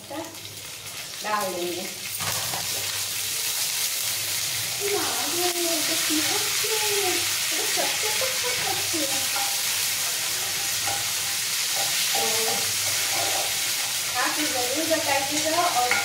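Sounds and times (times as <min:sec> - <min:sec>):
seeds sizzling in hot oil: 0:00.0 - 0:16.0
steel spoon stirring: 0:08.4 - 0:14.2.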